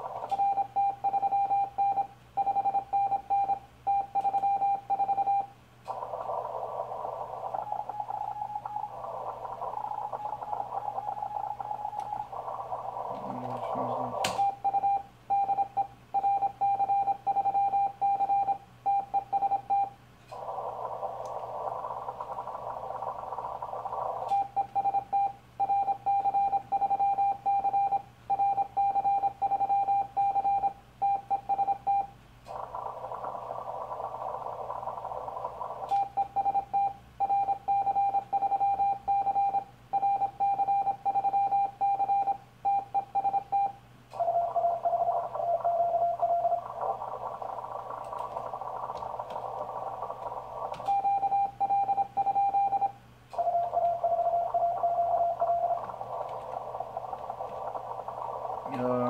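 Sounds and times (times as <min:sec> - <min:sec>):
morse code beeps: 0:00.3 - 0:05.5, 0:13.8 - 0:20.0, 0:24.3 - 0:32.2, 0:35.9 - 0:47.1, 0:50.8 - 0:56.5
radio band hiss: 0:05.9 - 0:14.6, 0:20.3 - 0:24.5, 0:45.1 - 0:50.9, 0:55.4 - 0:59.0.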